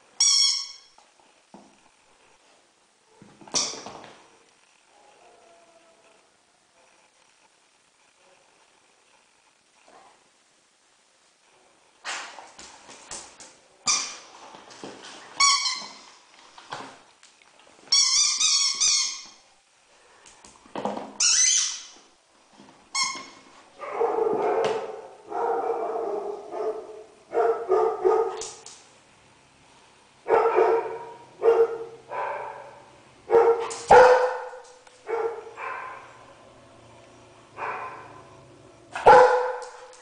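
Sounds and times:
high squeaks: 0:15.4 - 0:16.2, 0:17.9 - 0:19.5, 0:21.2 - 0:22.0
dog barking and yipping: 0:23.8 - 0:28.4, 0:30.3 - 0:36.2, 0:37.6 - 0:38.1, 0:39.0 - 0:40.0.

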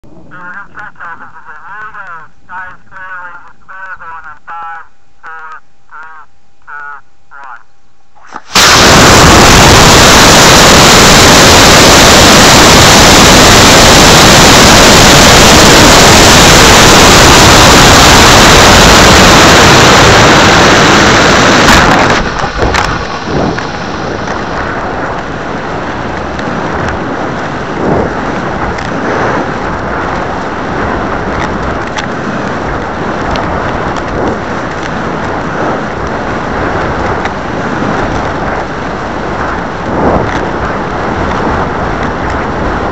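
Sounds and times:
rocket motor exhaust roar: 0:08.3 - 0:42.9
wind rushing over airframe: 0:08.4 - 0:42.9.

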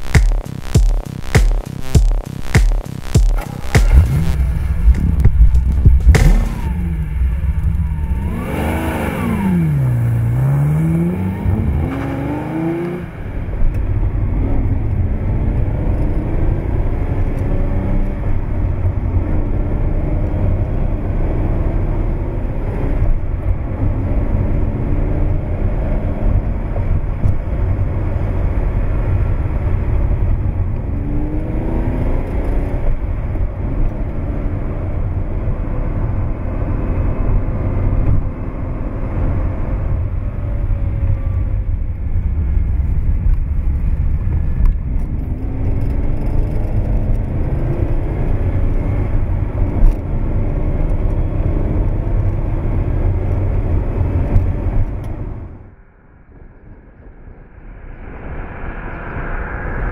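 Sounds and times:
car engine revving: 0:00.0 - 0:26.6.

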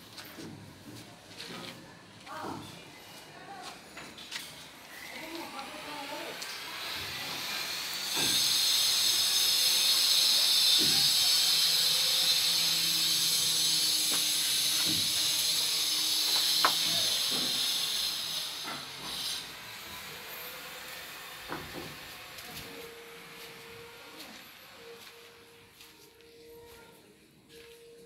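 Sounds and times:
loud high-pitched hiss: 0:06.6 - 0:19.7.

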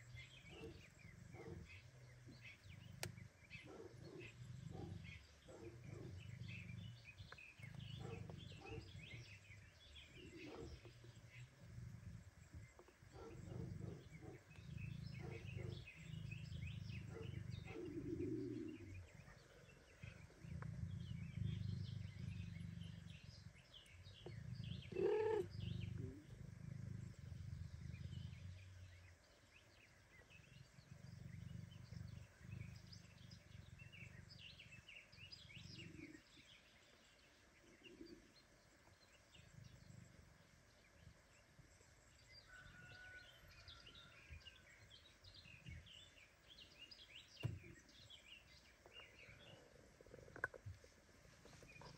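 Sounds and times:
cat purring: 0:03.8 - 0:29.1, 0:30.2 - 0:36.5.

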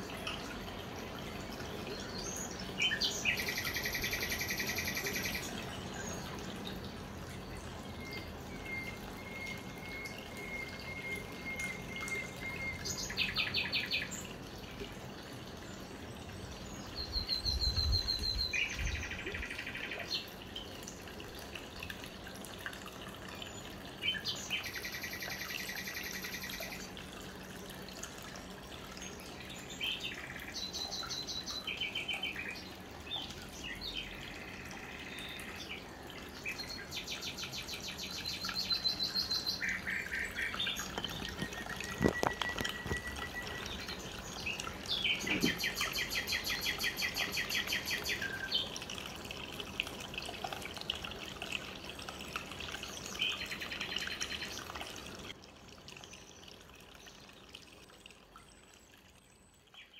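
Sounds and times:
water trickling down fountain: 0:00.0 - 0:59.9
birds chirping in trills: 0:28.8 - 0:48.9.

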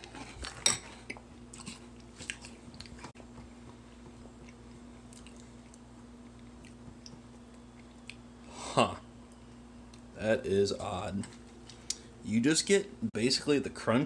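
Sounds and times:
person chewing crunchy cereal: 0:00.0 - 0:03.5, 0:04.1 - 0:08.2
low steady hum: 0:00.0 - 0:14.0.

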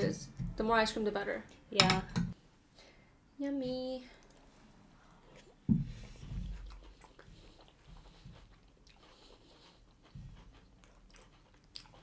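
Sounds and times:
soft chewing and mouth noises: 0:03.7 - 0:12.0.

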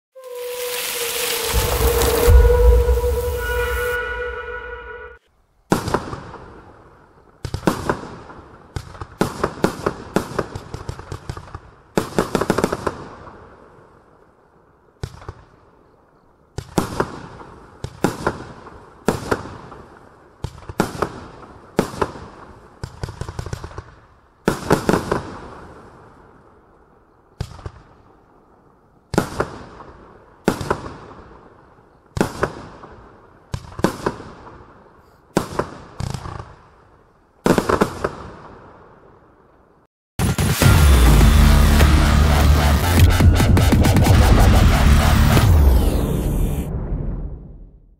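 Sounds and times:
firework barrage bangs: 0:00.3 - 0:06.5.

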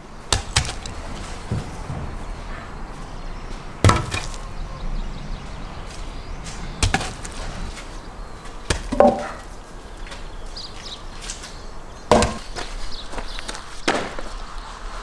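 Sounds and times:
logs landing with wooden knocks: 0:00.3 - 0:02.2, 0:03.8 - 0:04.4, 0:06.4 - 0:10.3, 0:11.2 - 0:14.3.

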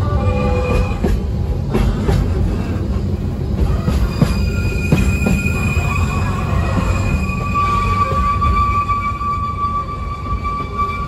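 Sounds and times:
train wheels rumbling on rail: 0:00.0 - 0:11.0
knocks of train wheels: 0:00.5 - 0:08.4
high wheel squeal: 0:03.6 - 0:11.0.

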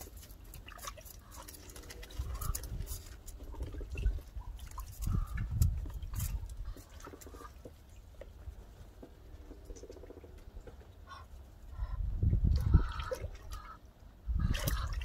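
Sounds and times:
ducks splashing in water: 0:00.0 - 0:08.2, 0:09.3 - 0:15.0
small clicks and drips: 0:00.0 - 0:11.1.

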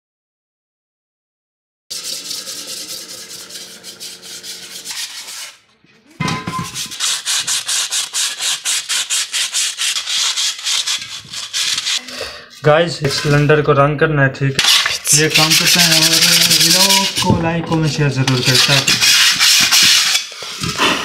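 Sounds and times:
hand tool scraping rust off steel: 0:01.9 - 0:05.6, 0:06.2 - 0:12.0, 0:18.3 - 0:20.7.

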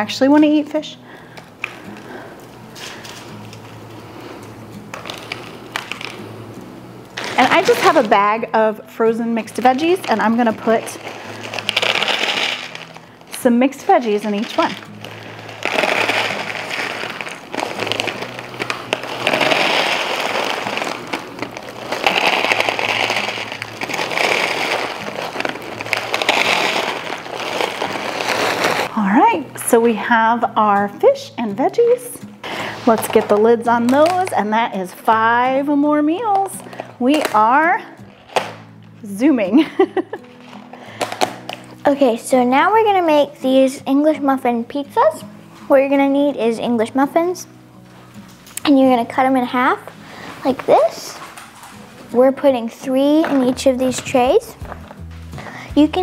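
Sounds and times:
frozen vegetables rattling into containers: 0:04.9 - 0:06.3, 0:07.2 - 0:08.5, 0:09.2 - 0:28.9, 0:32.5 - 0:34.4, 0:36.1 - 0:38.7, 0:39.8 - 0:42.0, 0:52.4 - 0:56.0.

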